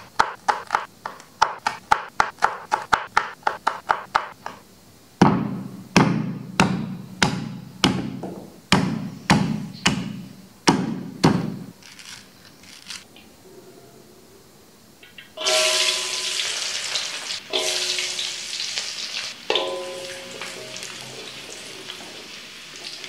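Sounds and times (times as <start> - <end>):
stone pestle thudding in mortar: 5.2 - 11.7.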